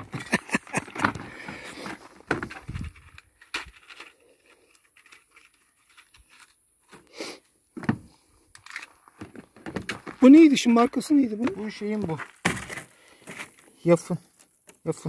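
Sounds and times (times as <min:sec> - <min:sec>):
small clicks and rustling: 0:02.6 - 0:07.0, 0:08.5 - 0:10.2.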